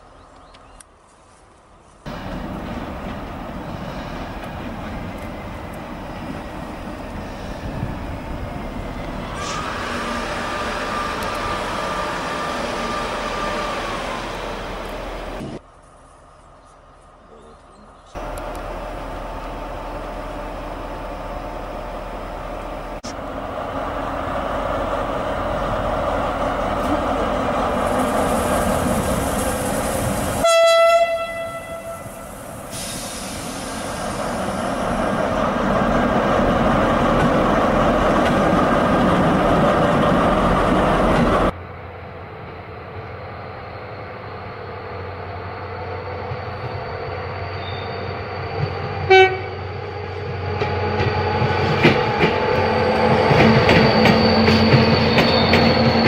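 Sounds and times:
locomotive horn: 30.4 - 32.2, 49.1 - 49.7.

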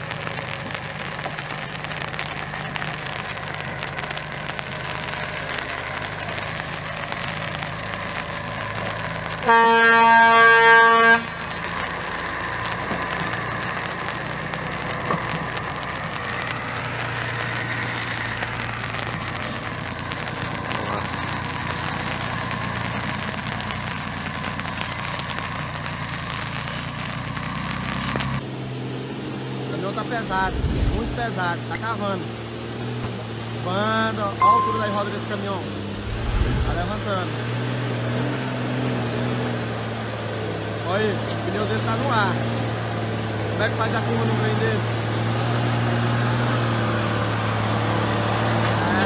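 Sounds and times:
air horn blasts: 9.4 - 11.5.

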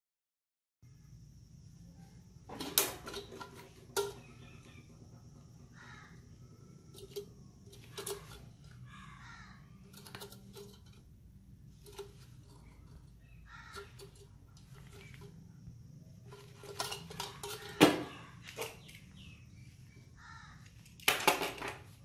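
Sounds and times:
sheet metal clinking and knocking: 2.5 - 5.8, 16.3 - 18.9
squeaky metal scrapes: 6.9 - 8.9.

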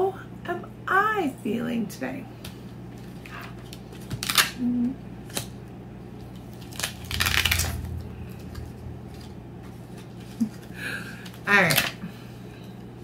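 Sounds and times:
closed-mouth hum: 4.5 - 5.6, 6.8 - 11.3
woman sighing heavily: 10.7 - 11.3.

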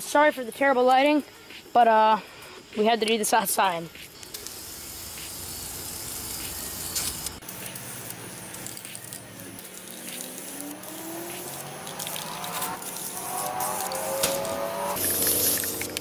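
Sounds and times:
spray paint can hissing: 3.9 - 16.0.

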